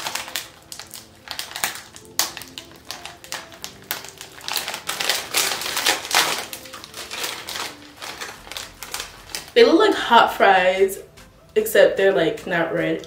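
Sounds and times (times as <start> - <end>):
plastic chip bag crinkling: 0.0 - 10.2.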